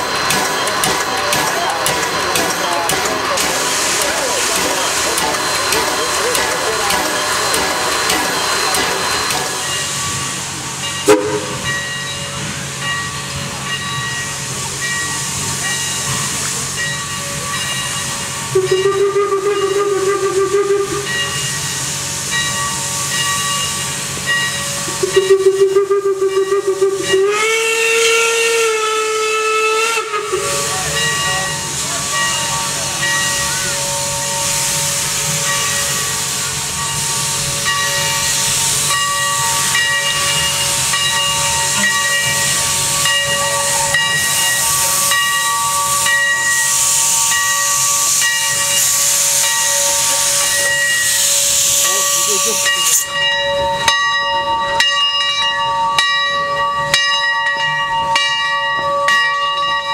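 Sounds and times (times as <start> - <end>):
steam hissing: 0.0 - 57.0
steam locomotive whistle: 11.0 - 12.0, 18.2 - 21.6, 24.8 - 36.3.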